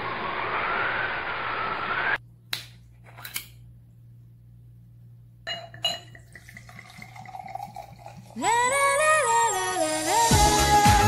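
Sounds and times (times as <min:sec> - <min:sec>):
faint steady ringing: 0:05.4 - 0:08.4
glass tumbler clinking: 0:05.5 - 0:08.5.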